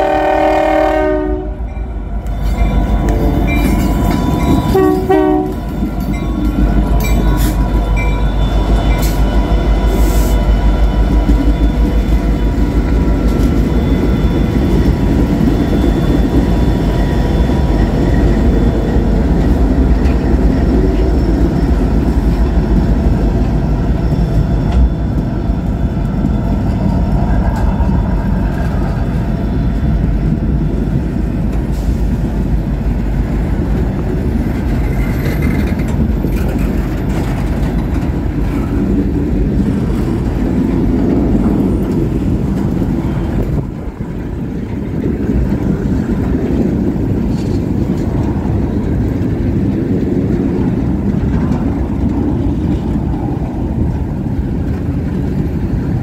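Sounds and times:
locomotive air horn: 0:00.0 - 0:01.7, 0:04.6 - 0:05.8
freight train rumbling past: 0:00.0 - 0:56.0.

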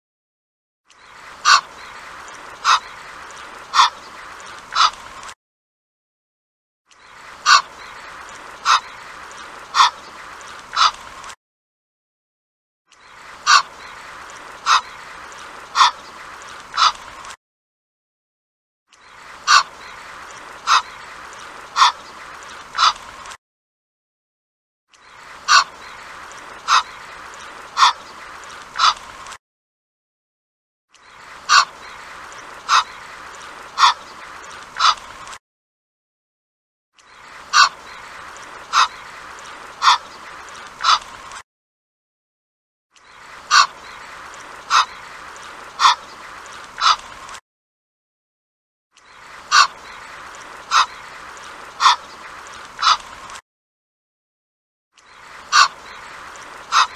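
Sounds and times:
goose calling: 0:01.4 - 0:01.7, 0:02.6 - 0:02.9, 0:03.7 - 0:04.1, 0:04.7 - 0:05.0, 0:07.4 - 0:08.0, 0:08.6 - 0:09.0, 0:09.7 - 0:10.0, 0:10.7 - 0:11.0, 0:13.4 - 0:13.7, 0:14.6 - 0:15.0, 0:15.7 - 0:16.1, 0:16.8 - 0:17.0, 0:19.4 - 0:19.8, 0:20.6 - 0:21.0, 0:21.8 - 0:22.1, 0:25.5 - 0:25.8, 0:26.6 - 0:27.1, 0:27.8 - 0:28.1, 0:28.8 - 0:29.0, 0:31.5 - 0:32.0, 0:32.6 - 0:33.0, 0:33.8 - 0:34.2, 0:34.8 - 0:35.0, 0:37.5 - 0:37.8, 0:38.7 - 0:39.0, 0:39.8 - 0:40.2, 0:40.8 - 0:41.1, 0:43.5 - 0:43.8, 0:44.7 - 0:45.0, 0:45.8 - 0:46.1, 0:46.8 - 0:47.0, 0:49.5 - 0:50.0, 0:50.7 - 0:51.0, 0:51.8 - 0:52.1, 0:52.8 - 0:53.0, 0:55.5 - 0:55.9, 0:56.7 - 0:56.9.

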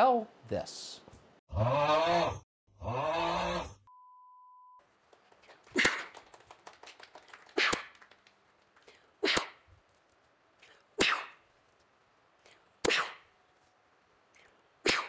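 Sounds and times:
short steady beep: 0:03.9 - 0:04.8.

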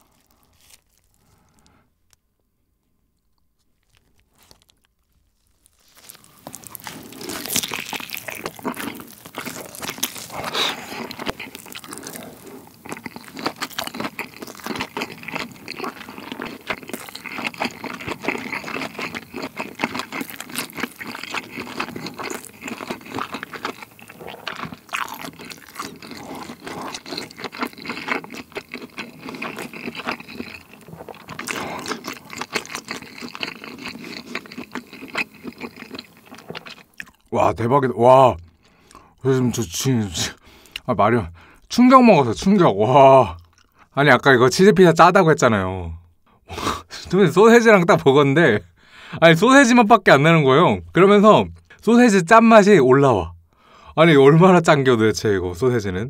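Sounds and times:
biting and chewing food: 0:00.0 - 0:02.2, 0:03.2 - 0:37.4, 0:43.3 - 0:43.9.

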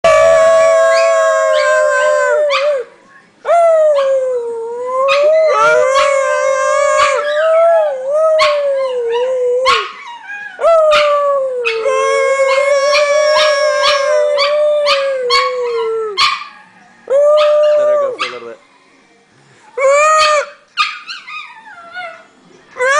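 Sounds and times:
small dog howling: 0:00.0 - 0:02.9, 0:03.5 - 0:18.6.

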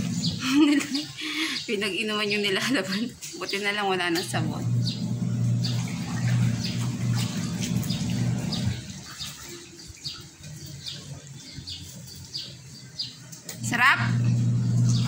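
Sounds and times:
steady low hum: 0:04.3 - 0:09.1, 0:13.6 - 0:15.0.

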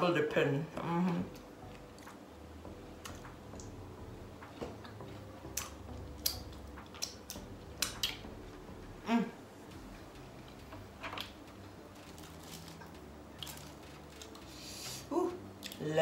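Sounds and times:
person humming: 0:09.0 - 0:09.5.

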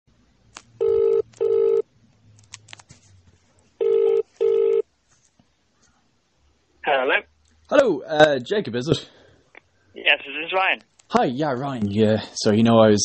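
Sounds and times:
telephone ringback tone: 0:00.8 - 0:01.8, 0:03.8 - 0:04.8.

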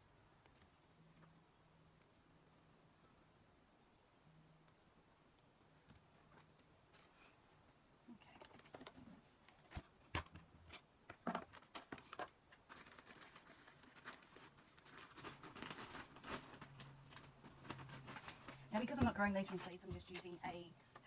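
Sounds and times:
plastic bag rustling: 0:11.2 - 0:20.7.

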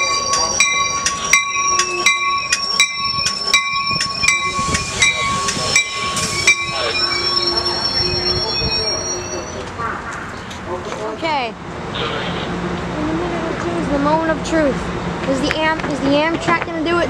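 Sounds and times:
train bell ringing: 0:00.0 - 0:09.8
rumble of train cars: 0:00.0 - 0:17.0.

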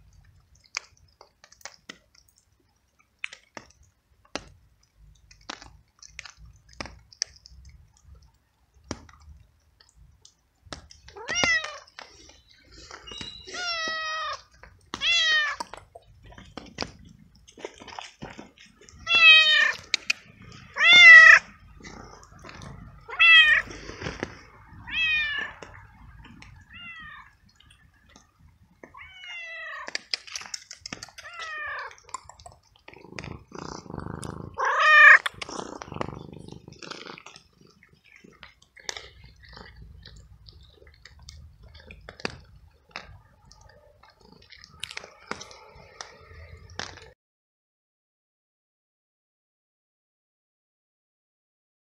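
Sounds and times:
cat meowing: 0:11.1 - 0:11.9, 0:13.3 - 0:15.7, 0:19.0 - 0:19.9, 0:20.7 - 0:21.5, 0:23.0 - 0:23.7, 0:24.8 - 0:25.7, 0:26.6 - 0:27.4, 0:28.9 - 0:29.9, 0:31.2 - 0:32.0, 0:34.3 - 0:35.3.

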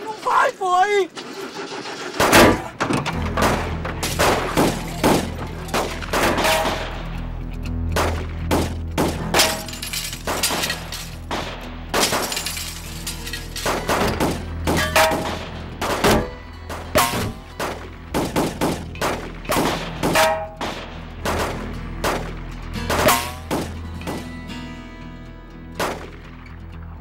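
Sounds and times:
gunfire: 0:02.1 - 0:07.0, 0:08.0 - 0:12.5, 0:13.6 - 0:24.3, 0:25.8 - 0:26.2
bullets striking a truck: 0:02.2 - 0:07.0, 0:08.0 - 0:24.3, 0:25.8 - 0:26.2
background music: 0:02.2 - 0:27.0
glass breaking: 0:09.3 - 0:16.3, 0:17.0 - 0:17.4, 0:22.9 - 0:24.2.

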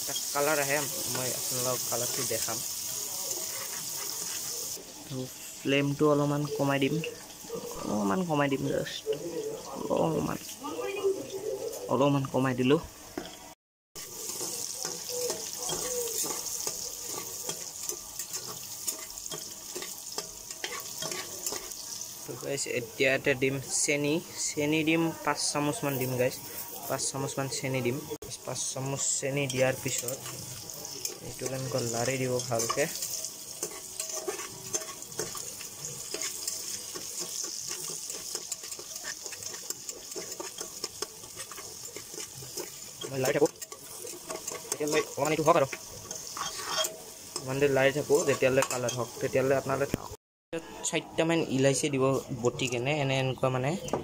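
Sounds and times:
onions sizzling in hot oil: 0:00.0 - 0:50.2
ladle scraping and knocking pot: 0:29.4 - 0:49.2.

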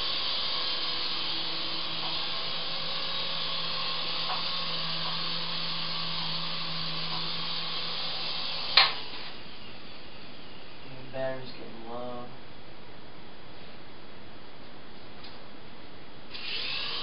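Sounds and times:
toy helicopter rotors whirring: 0:00.0 - 0:09.6, 0:16.3 - 0:17.0.

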